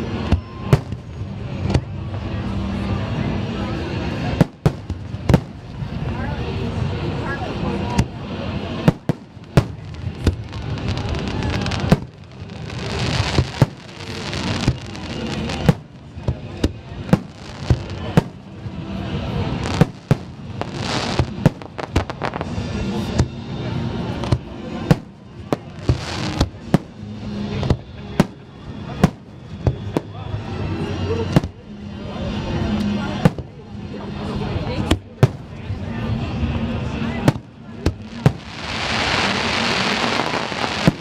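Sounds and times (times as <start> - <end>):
fireworks crackle: 4.2 - 23.2, 23.9 - 30.5, 37.2 - 41.0
fireworks bangs: 4.3 - 5.9, 8.0 - 23.4, 24.2 - 30.2, 37.2 - 41.0.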